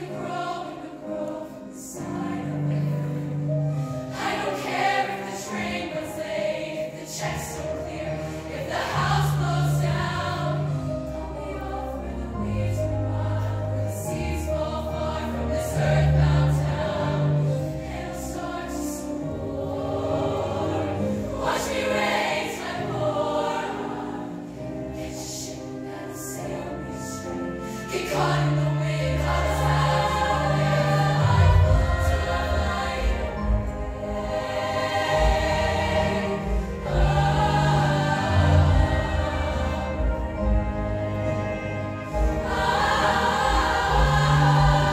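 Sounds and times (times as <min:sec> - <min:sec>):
choir singing in harmony: 0:00.0 - 0:44.9
live backing band: 0:26.5 - 0:44.9.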